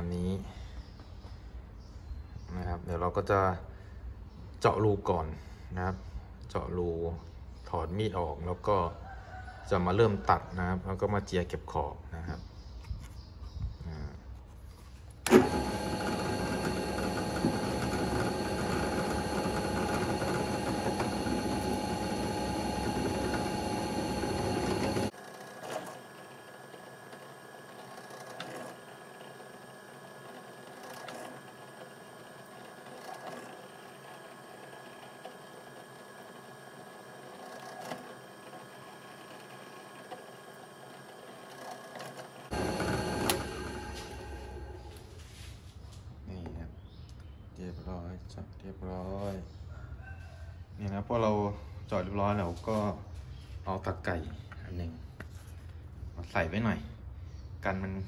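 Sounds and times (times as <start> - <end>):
bumps of drilling holes: 15.2 - 45.1
drill press motor running: 15.2 - 45.4.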